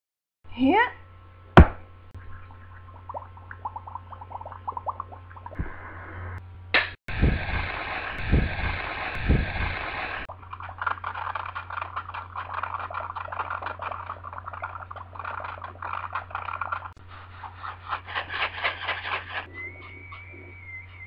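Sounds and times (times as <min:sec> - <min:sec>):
low electrical hum: 0:00.4 - 0:17.9
rapid scratching and scraping: 0:10.3 - 0:20.3.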